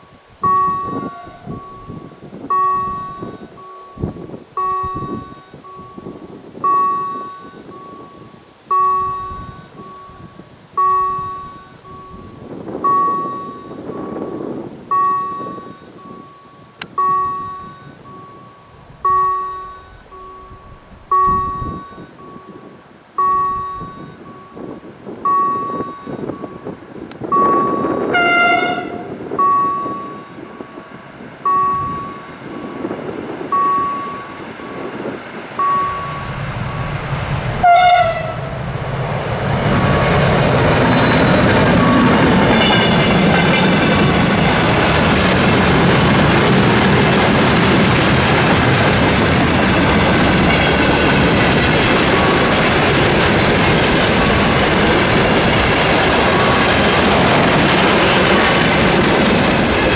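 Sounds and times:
level crossing warning chime: 0:00.0 - 0:45.1, 0:49.6 - 0:59.9
locomotive horn blasts: 0:00.6 - 0:02.0, 0:27.4 - 0:29.9, 0:37.5 - 0:38.5, 0:41.8 - 0:44.0
train wheels clickety-clack: 0:38.8 - 0:59.9.

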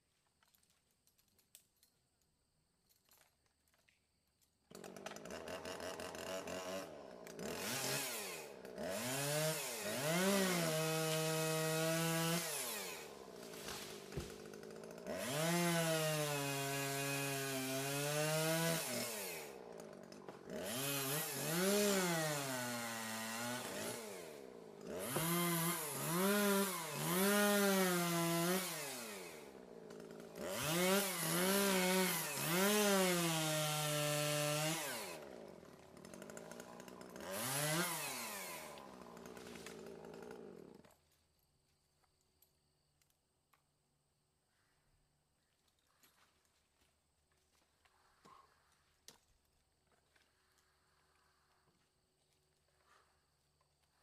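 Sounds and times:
chainsaw cutting through log: 0:04.7 - 0:41.0.

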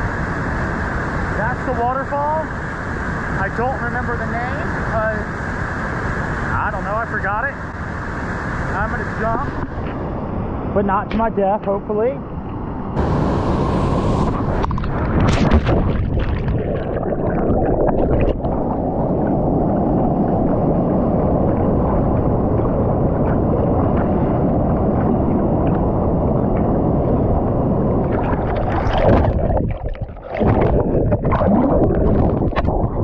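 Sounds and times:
underwater rushing water: 0:12.4 - 0:33.0
water splashing: 0:14.4 - 0:26.4, 0:28.0 - 0:33.0.

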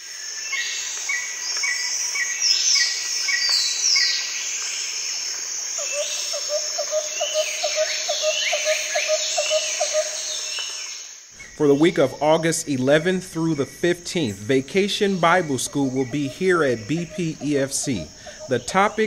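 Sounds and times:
insects: 0:00.0 - 0:19.0
low repeated bird call: 0:11.4 - 0:19.0.

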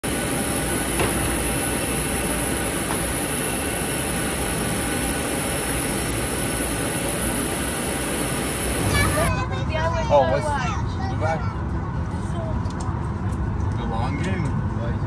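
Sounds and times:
thin high whine: 0:00.1 - 0:09.3.

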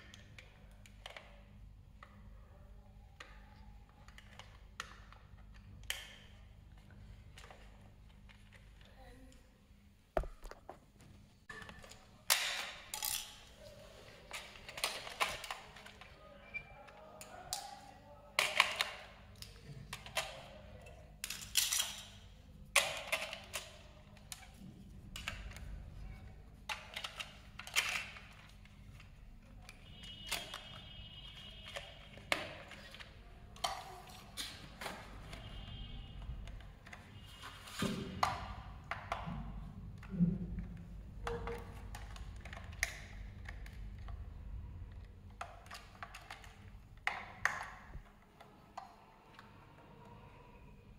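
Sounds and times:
plastic clicks and knocks: 0:37.8 - 0:44.2, 0:44.9 - 0:49.0.

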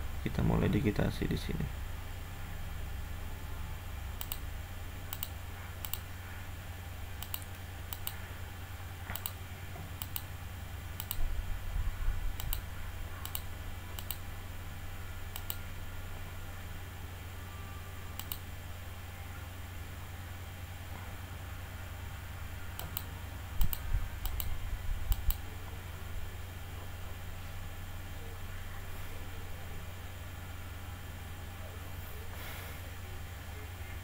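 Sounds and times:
steady low hum: 0:00.0 - 0:34.0
mouse button clicking: 0:18.2 - 0:18.4.

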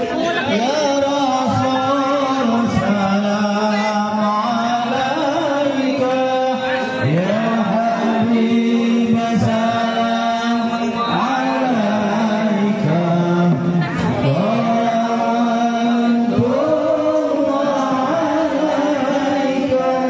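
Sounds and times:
person chanting a sung melody: 0:00.4 - 0:20.0.

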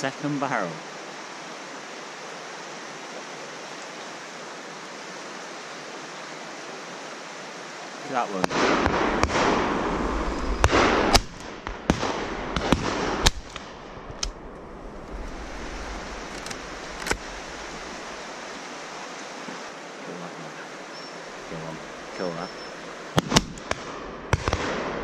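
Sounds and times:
rushing noise on microphone: 0:08.3 - 0:18.7
shotgun shots: 0:08.5 - 0:09.9, 0:10.6 - 0:13.7, 0:23.2 - 0:25.0.

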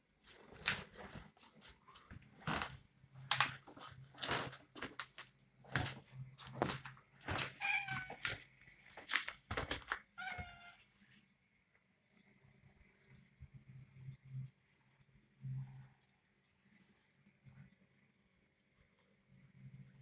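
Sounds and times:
cat meowing: 0:07.5 - 0:08.3, 0:10.2 - 0:10.9.

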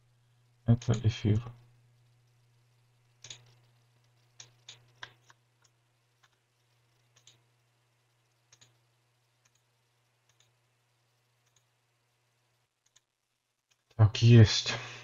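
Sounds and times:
faint low hum: 0:00.0 - 0:15.0
faint computer mouse clicks: 0:07.1 - 0:07.4, 0:08.5 - 0:08.8, 0:09.4 - 0:10.6, 0:11.4 - 0:11.7, 0:12.8 - 0:13.1.

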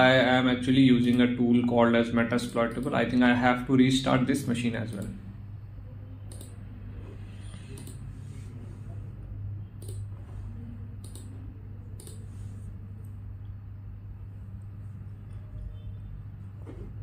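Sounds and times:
low hum: 0:05.0 - 0:17.0
computer mouse clicking: 0:06.2 - 0:06.6, 0:07.4 - 0:08.2, 0:09.8 - 0:10.2, 0:11.0 - 0:12.3.

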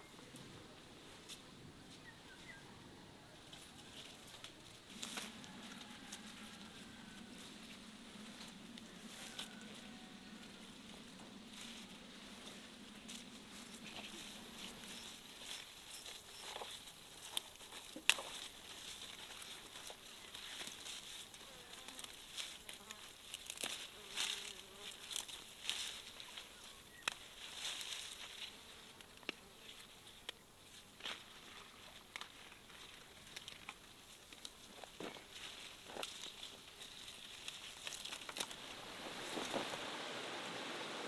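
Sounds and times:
insects buzzing: 0:13.0 - 0:41.0
plant stems snapping and rustling: 0:16.5 - 0:20.9, 0:21.8 - 0:26.0, 0:26.9 - 0:28.0, 0:32.0 - 0:38.7
flying insect drone: 0:35.4 - 0:41.0.

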